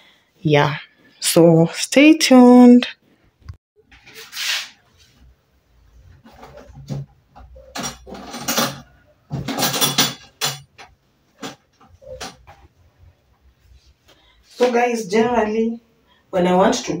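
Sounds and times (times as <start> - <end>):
curtain hooks rattling on rail: 7.7 - 11.6.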